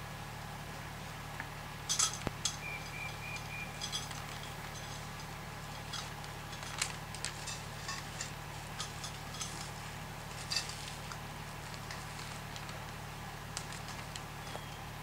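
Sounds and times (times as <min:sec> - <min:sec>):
light metal clicks and clinks: 0:01.9 - 0:11.2.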